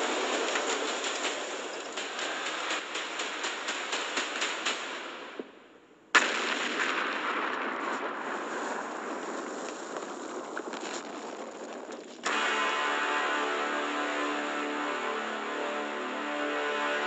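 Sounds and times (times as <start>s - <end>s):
falling rock crackling and hissing: 7.0s - 14.0s
music: 12.3s - 17.0s.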